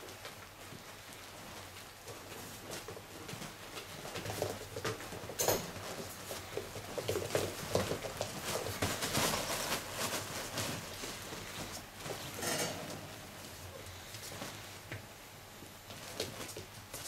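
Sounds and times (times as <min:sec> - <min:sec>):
small paws scrabbling on bedding: 0:00.0 - 0:17.0.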